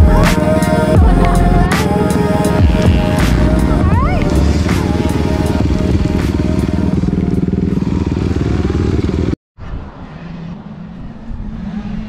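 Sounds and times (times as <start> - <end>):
dirt bike engine running hard: 0.0 - 9.4
faint steady engine drone: 0.0 - 12.0.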